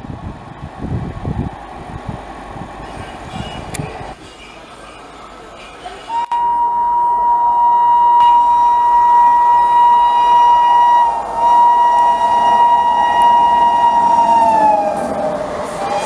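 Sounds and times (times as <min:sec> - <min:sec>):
train passing at speed: 0:00.0 - 0:16.0
locomotive horn blast: 0:06.1 - 0:16.0.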